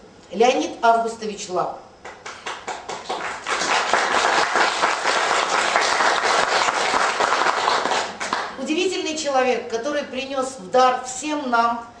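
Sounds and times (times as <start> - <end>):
audience applauding: 2.2 - 8.6.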